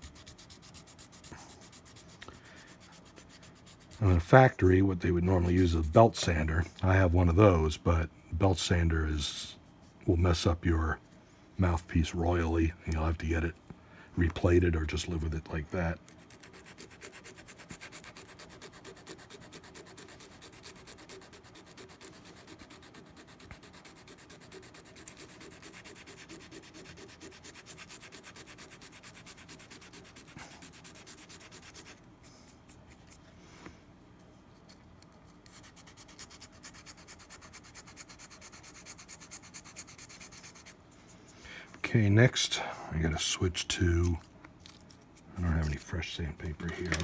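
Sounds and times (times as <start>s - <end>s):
sandpaper rubbing on metal: 0.0s - 6.3s, 16.2s - 32.0s, 35.5s - 40.8s.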